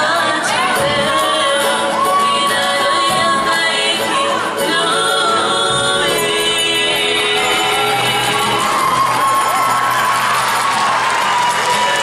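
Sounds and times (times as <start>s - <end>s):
person singing long held notes: 0.0s - 9.2s.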